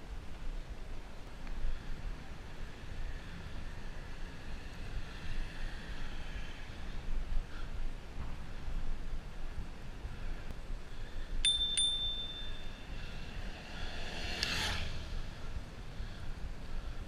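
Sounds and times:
wind and tyres rumbling: 0:00.0 - 0:17.0
bicycle bell ringing: 0:11.4 - 0:13.2.

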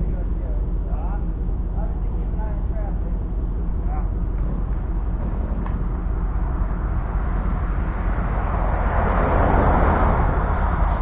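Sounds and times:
low outdoor rumble: 0:00.0 - 0:11.0
rush of noise: 0:03.7 - 0:11.0.

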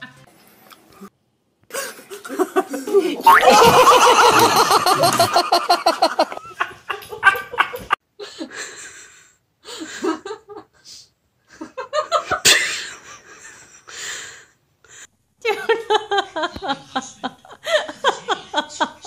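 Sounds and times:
people laughing: 0:01.7 - 0:08.0, 0:15.5 - 0:19.0.

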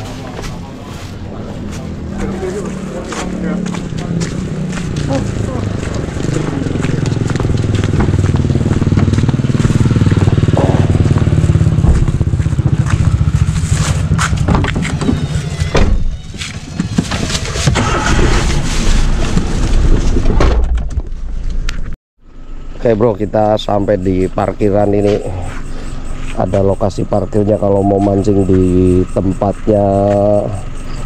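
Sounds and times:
motorcycle engine riding: 0:00.0 - 0:20.4.

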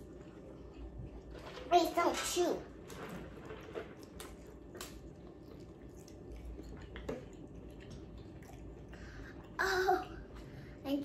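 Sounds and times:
chewing and biting: 0:03.6 - 0:09.5.

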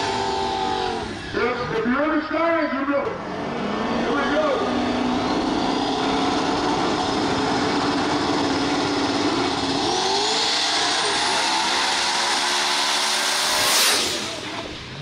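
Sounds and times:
race car engines revving: 0:00.0 - 0:15.0.

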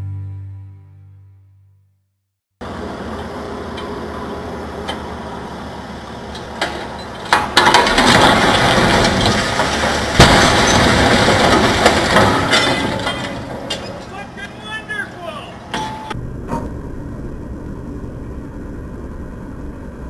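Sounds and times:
building collapsing with crashing: 0:07.0 - 0:14.5
sharp crack: 0:07.3 - 0:14.3
low hum: 0:15.6 - 0:20.0.

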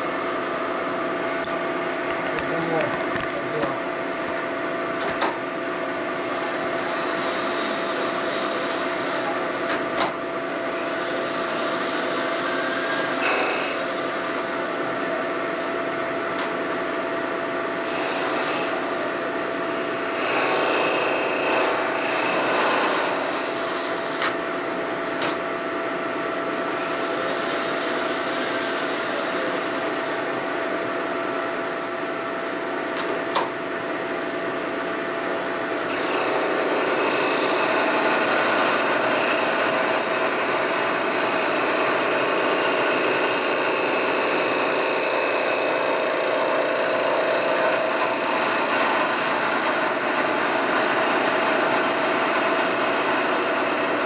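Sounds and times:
milling machine cutting metal: 0:05.1 - 0:25.6, 0:35.4 - 0:54.0.

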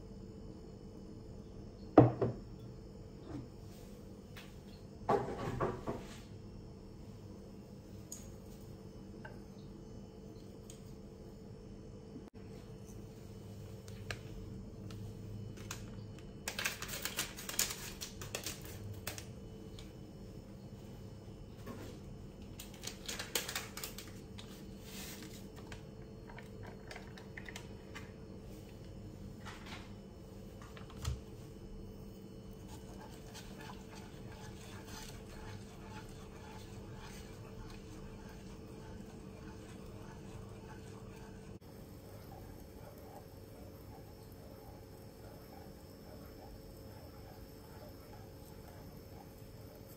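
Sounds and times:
low steady hum: 0:00.0 - 0:49.9
chopsticks scraping a pot: 0:32.6 - 0:41.6.

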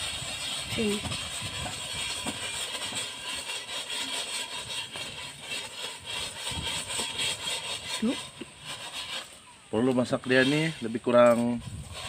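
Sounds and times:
crackling hiss of fire and hot pan: 0:00.0 - 0:03.0.

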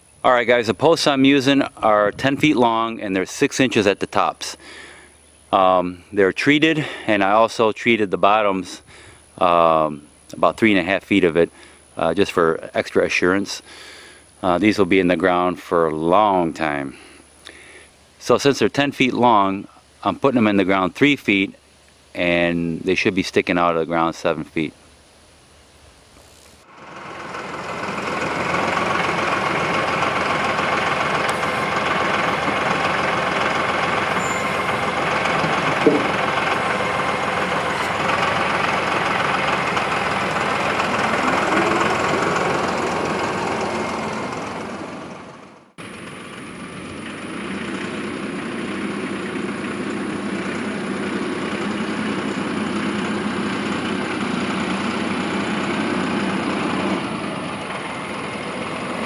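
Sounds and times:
tractor engine running: 0:00.0 - 0:04.6, 0:26.2 - 0:59.0.

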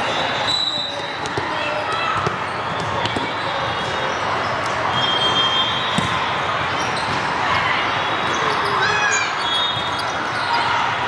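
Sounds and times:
crowd talking: 0:00.0 - 0:11.0
volleyballs hit and bouncing: 0:01.0 - 0:05.0, 0:05.8 - 0:08.8.

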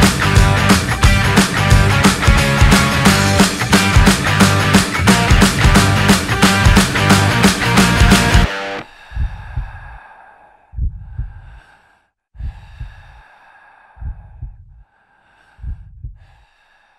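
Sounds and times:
music: 0:00.0 - 0:08.8
person breathing heavily: 0:08.8 - 0:16.9.

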